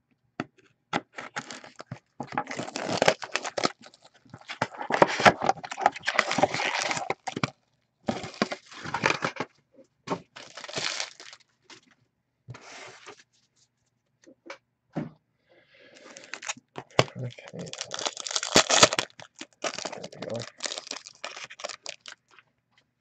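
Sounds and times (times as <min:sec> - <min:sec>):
plastic wrap crinkling and tearing: 0:01.2 - 0:07.5, 0:08.1 - 0:09.4, 0:10.3 - 0:11.5, 0:16.0 - 0:22.4.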